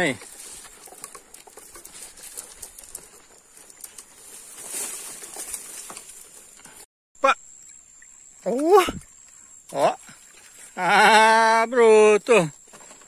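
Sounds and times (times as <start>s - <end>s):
brush rustling against legs: 0.0s - 6.9s
footsteps on dirt path: 0.0s - 6.9s.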